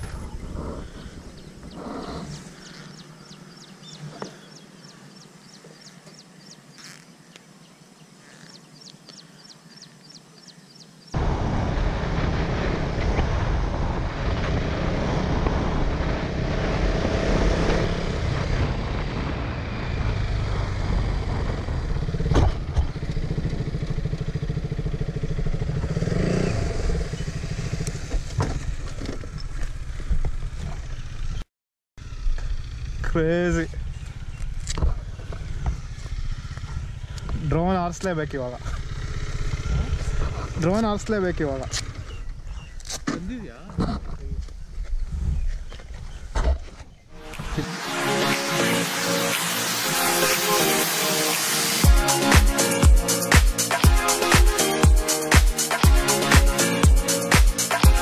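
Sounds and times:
wind noise on helmet: 0.0 - 2.5, 12.9 - 23.2, 33.9 - 37.5, 43.8 - 47.1
motorcycle engine riding: 0.0 - 7.1, 11.2 - 31.4, 32.0 - 58.0.

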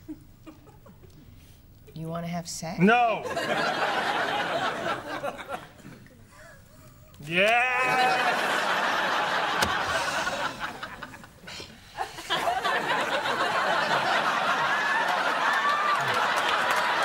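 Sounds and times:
audience laughing: 3.2 - 7.0, 7.7 - 17.0.

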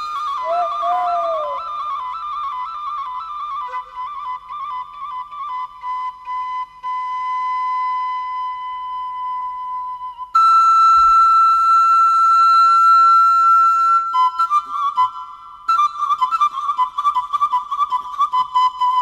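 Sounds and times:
solo flute melody: 0.0 - 19.0.

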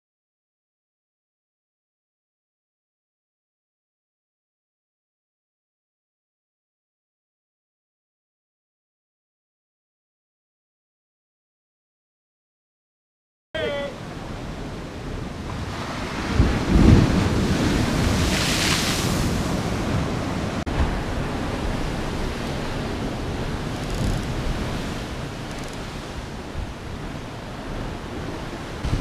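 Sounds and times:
surf breaking on rocky shore: 13.6 - 29.0
wind buffeting microphone: 14.1 - 29.0.

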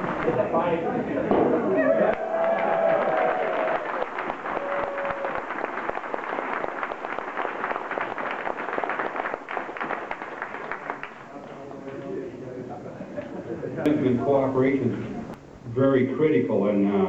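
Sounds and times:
crowd applauding: 1.8 - 12.2.

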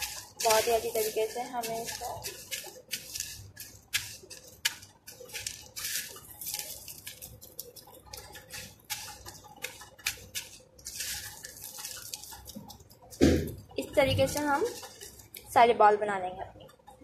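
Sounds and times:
crushed cornflakes crackling: 0.0 - 15.6.

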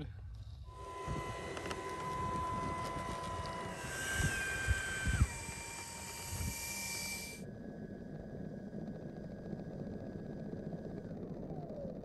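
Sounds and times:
electric ducted fans whining: 0.5 - 12.0
higher whine with rush of air: 0.6 - 12.0.

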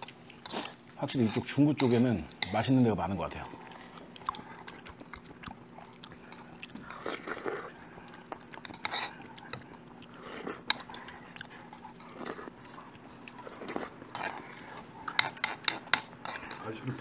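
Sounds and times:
faint steady hum: 0.0 - 17.0
person chewing: 3.5 - 16.5.

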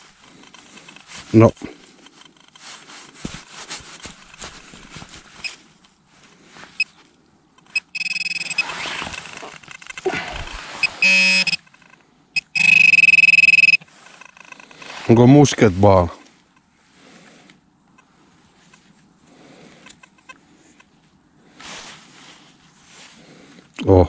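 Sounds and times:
pinpointer buzzing alert tone: 7.7 - 8.8, 10.8 - 11.7, 12.4 - 14.5
soil scraped by hand: 8.5 - 11.5.

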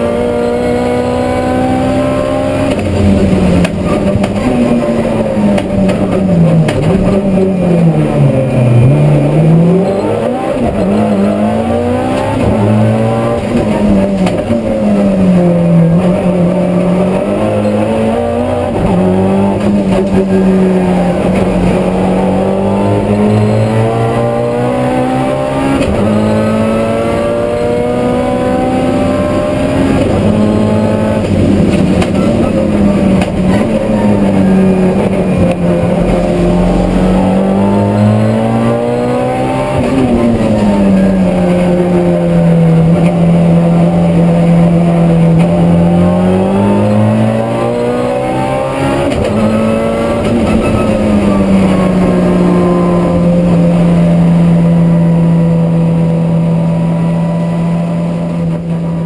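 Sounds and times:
race car engine: 0.0 - 59.0.

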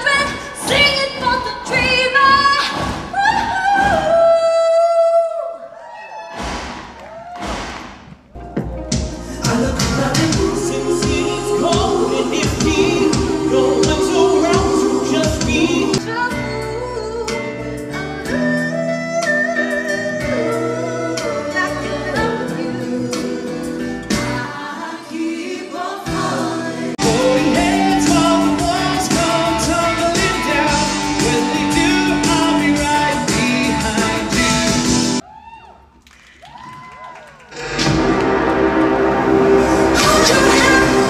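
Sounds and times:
singers with band backing: 9.2 - 17.4, 18.2 - 35.2, 39.6 - 41.0.

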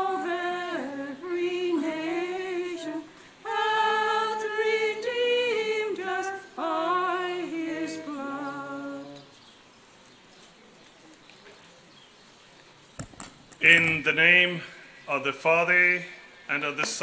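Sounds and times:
person singing a hymn: 0.0 - 9.4.

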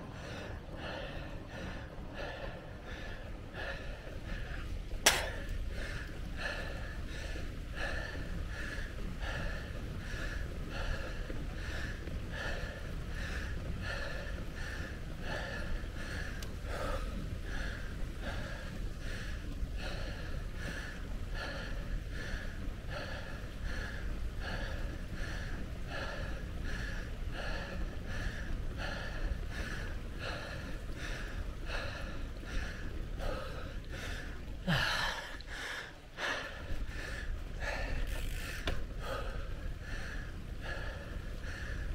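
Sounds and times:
cyclist breathing hard: 0.0 - 41.9
wind rumble: 0.0 - 41.9.

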